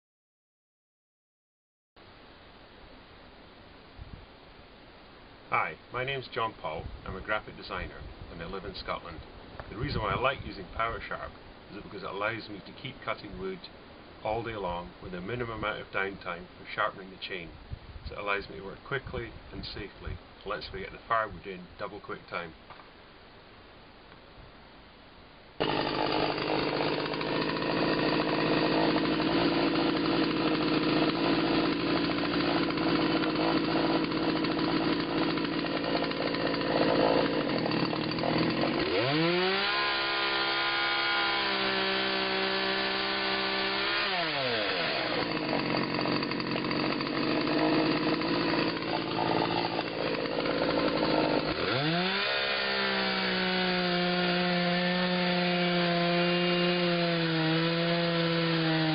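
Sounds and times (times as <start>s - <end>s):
chainsaw revving and idling: 25.6s - 58.9s.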